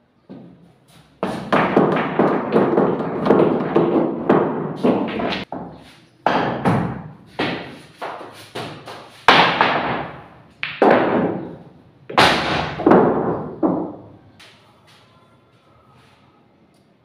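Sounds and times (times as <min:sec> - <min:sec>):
pool balls clacking: 0:01.2 - 0:06.6, 0:07.4 - 0:14.2.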